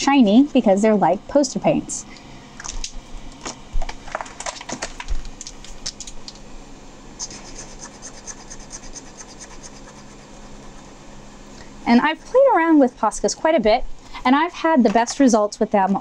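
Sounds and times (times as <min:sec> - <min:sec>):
marker scribbling on paper: 0:07.2 - 0:10.9.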